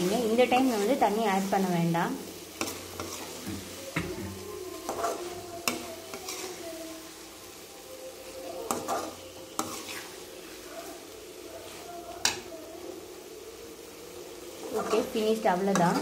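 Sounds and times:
masala sizzling: 0.0s - 16.0s
metal spatula scraping pan: 2.5s - 6.7s, 8.6s - 11.0s.

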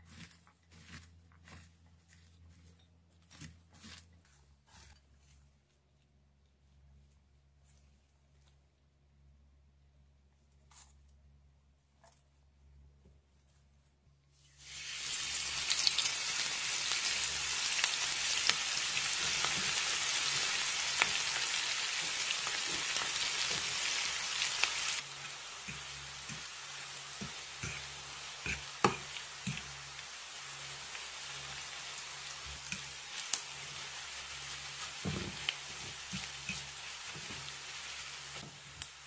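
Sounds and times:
onions sizzling in hot oil: 14.4s - 39.0s.

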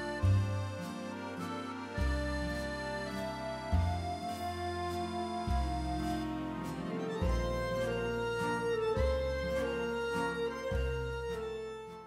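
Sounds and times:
deep bass line: 0.0s - 12.0s
held chords: 0.0s - 12.0s.

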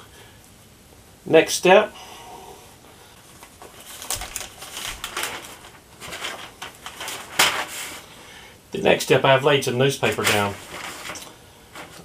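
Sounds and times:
newspaper rustling and crackling: 3.3s - 8.1s, 10.0s - 12.0s.

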